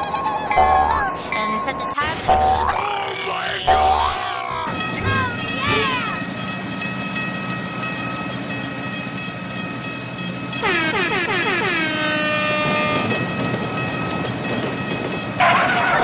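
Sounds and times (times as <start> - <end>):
cartoon train rumble: 0.0 - 16.0
held horn-like tones: 10.6 - 13.2.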